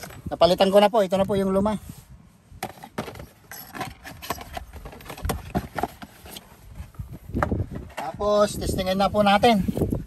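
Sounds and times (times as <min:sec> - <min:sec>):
plastic parts clicking and knocking: 0:02.6 - 0:06.2.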